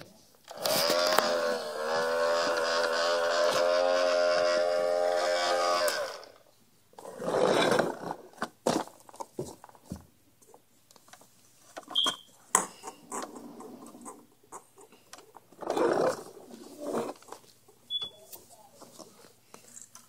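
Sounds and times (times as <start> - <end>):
brief high beep: 12.0 - 12.3.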